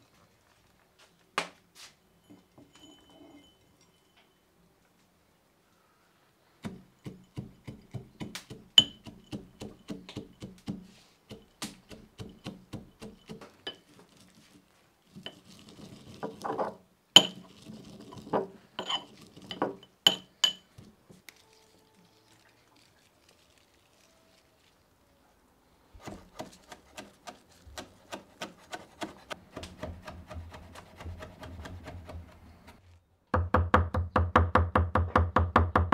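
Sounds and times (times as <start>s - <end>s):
metal pestle pounding in mortar: 6.6s - 13.4s, 27.8s - 32.3s.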